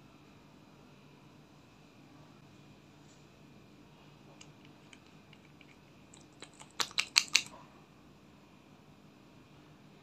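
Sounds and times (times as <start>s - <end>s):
bottle cap clicking: 4.6s - 7.5s.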